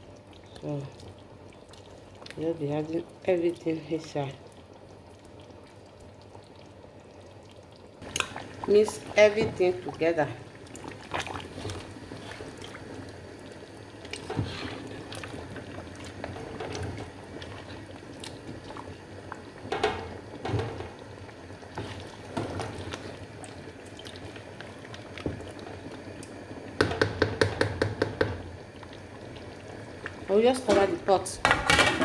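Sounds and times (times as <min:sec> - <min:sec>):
stew bubbling: 0:00.0 - 0:31.3
spoon knocking pot: 0:26.8 - 0:28.4.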